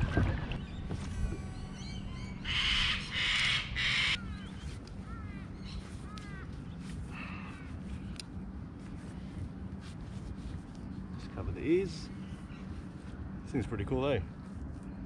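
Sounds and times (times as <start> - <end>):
loud harsh bird calls: 1.6 - 7.8.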